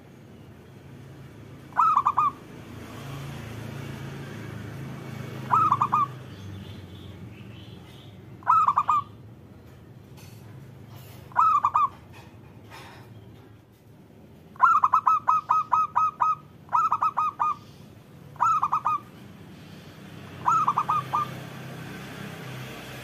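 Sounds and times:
dove cooing: 0:01.7 - 0:02.4, 0:05.3 - 0:06.2, 0:08.4 - 0:09.1, 0:11.3 - 0:12.0, 0:14.6 - 0:17.7, 0:18.4 - 0:19.2, 0:20.4 - 0:21.6.

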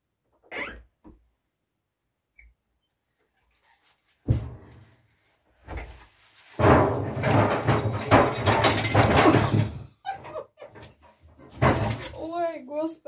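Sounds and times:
firewood logs clattering on wooden floor: 0:04.3 - 0:04.8, 0:06.6 - 0:10.0, 0:10.8 - 0:12.2
bang: 0:06.6 - 0:09.9.

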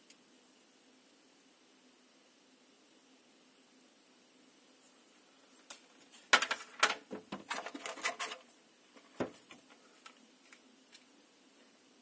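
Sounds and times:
plastic tray crinkling and clicking: 0:06.4 - 0:11.1.

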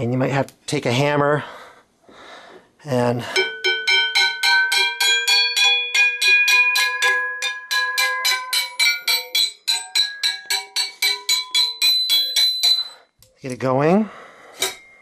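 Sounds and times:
hammer tapping ringing steel axle: 0:03.4 - 0:13.4, 0:14.6 - 0:15.0.

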